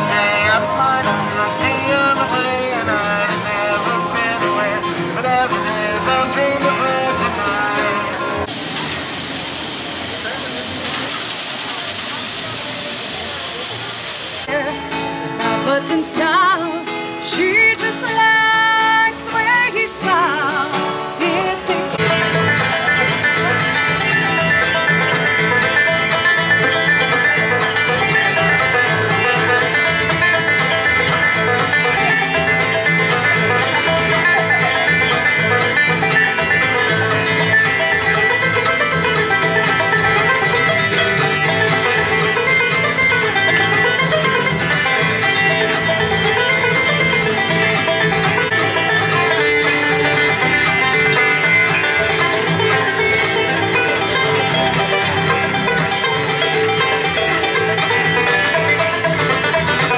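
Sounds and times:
bluegrass banjo and guitar music: 0.0s - 59.9s.

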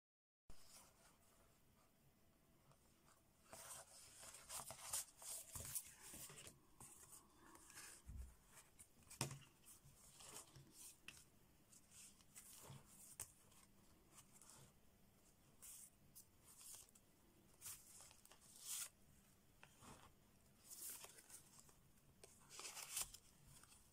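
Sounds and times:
paper pages rustling: 3.4s - 11.2s, 17.6s - 18.9s, 19.6s - 23.9s.

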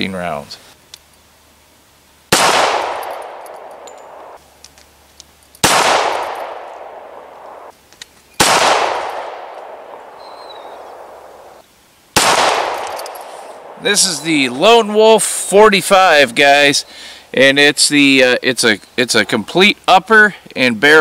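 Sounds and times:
pistol shots with echo: 2.3s - 4.4s, 5.6s - 7.7s, 8.4s - 11.3s, 12.2s - 13.8s.

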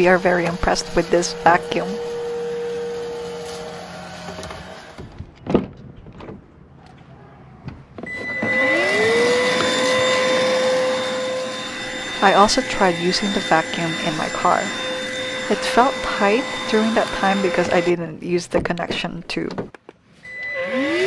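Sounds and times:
cordless vacuum whining: 0.0s - 5.2s, 8.0s - 18.0s, 20.2s - 21.0s.

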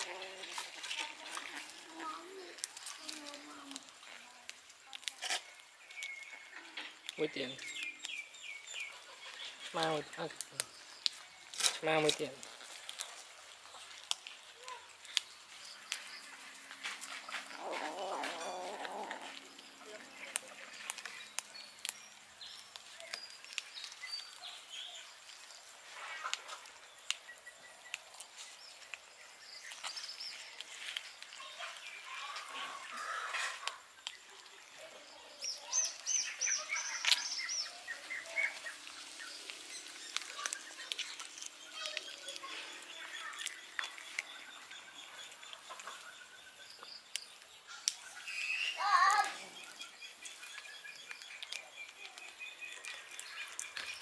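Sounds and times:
cats chewing fish and bones: 0.0s - 46.2s, 49.2s - 54.0s
faint bird chirps: 17.2s - 54.0s.

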